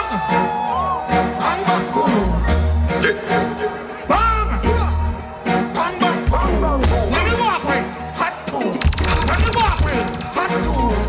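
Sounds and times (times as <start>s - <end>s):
dancehall music playing loud: 0.0s - 11.0s
heavy bass line: 1.6s - 7.9s, 8.8s - 11.0s.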